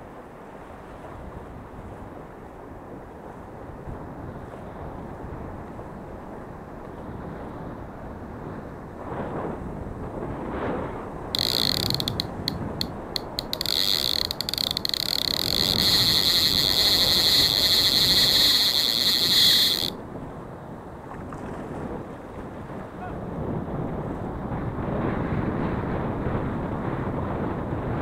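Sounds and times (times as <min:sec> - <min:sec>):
wind: 0:00.0 - 0:28.0
fishing reel whirring: 0:11.4 - 0:20.0.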